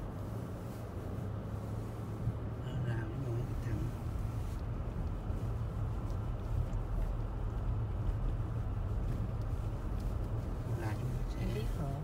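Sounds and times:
car driving on snowy road: 0.0s - 12.0s.

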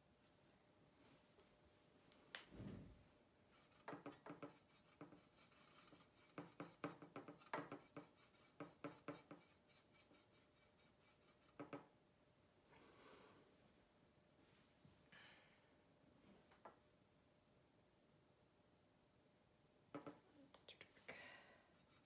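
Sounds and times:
painting tools tapping and scraping: 3.5s - 12.0s, 19.9s - 20.3s, 21.8s - 22.0s.

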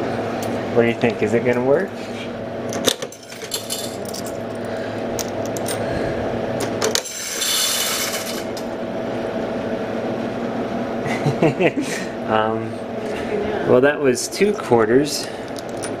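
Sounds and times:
coins clicking into vending machine: 2.7s - 4.6s, 6.8s - 8.6s
coin mechanism rattle: 2.7s - 5.8s, 6.8s - 8.6s, 15.5s - 16.0s.

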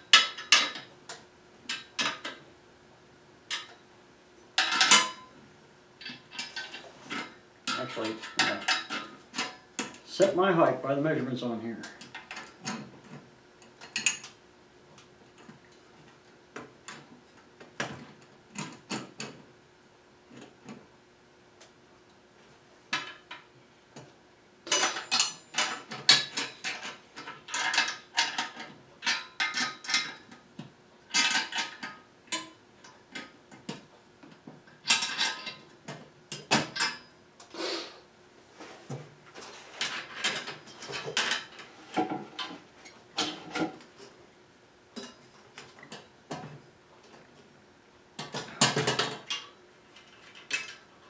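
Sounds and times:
metal clicks and clanks: 6.0s - 10.0s, 24.7s - 30.4s, 31.1s - 33.9s, 34.7s - 37.1s.

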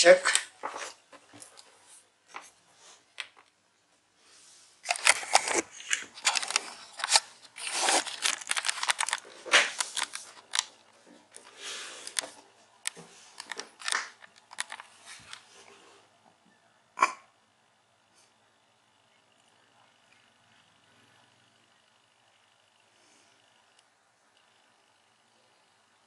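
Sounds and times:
laptop handling rustling and clicks: 4.8s - 15.6s.

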